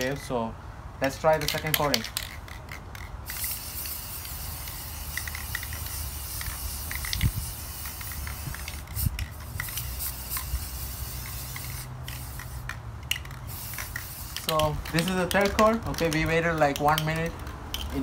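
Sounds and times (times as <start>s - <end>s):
aerosol spray can hissing: 3.2s - 15.4s.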